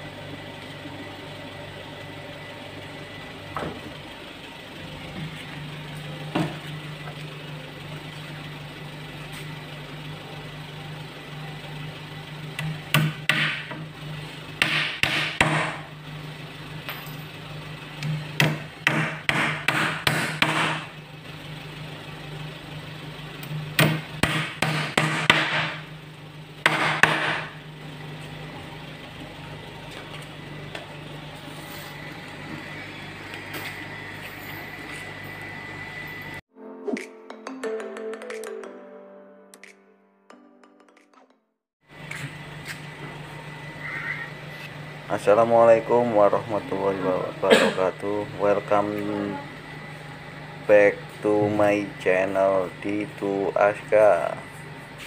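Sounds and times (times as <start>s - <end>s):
hammer nailing wooden planks: 13.0s - 13.7s, 14.6s - 15.8s, 18.4s - 20.8s, 23.8s - 25.8s, 26.7s - 27.5s
steady low hum: 41.9s - 55.0s.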